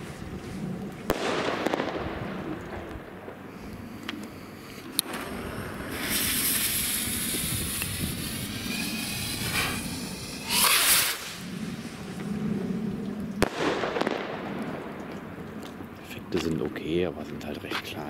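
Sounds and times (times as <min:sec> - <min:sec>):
firework fuse hissing: 0:03.5 - 0:12.4
rocket whoosh: 0:05.0 - 0:15.2.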